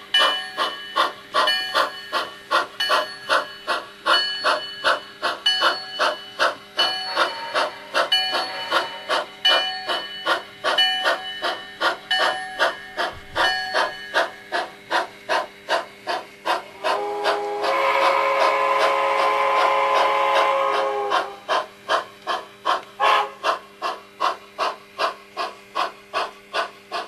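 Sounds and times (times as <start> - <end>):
steam locomotive exhaust chuffs: 0.0 - 27.0
steam whistle: 16.8 - 21.5, 23.0 - 23.4.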